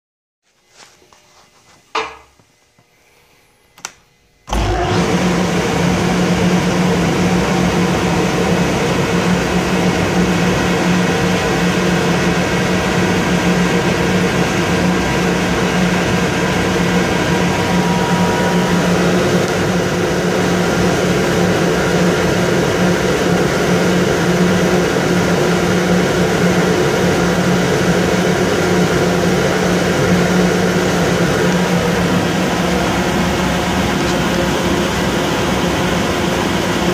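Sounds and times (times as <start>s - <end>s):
air compressor running: 1.6s - 36.9s
compressor switch click: 3.7s - 4.6s
constant hum: 6.9s - 24.3s.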